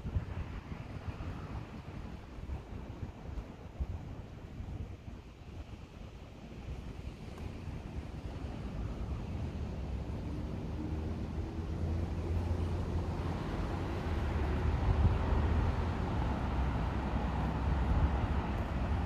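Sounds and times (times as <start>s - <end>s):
wind on microphone: 0.0s - 19.0s
vehicle rumble: 6.7s - 19.0s.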